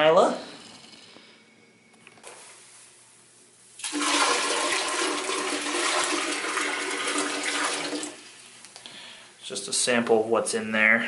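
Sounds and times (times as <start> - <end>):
water rushing into toilet bowl: 3.8 - 8.4.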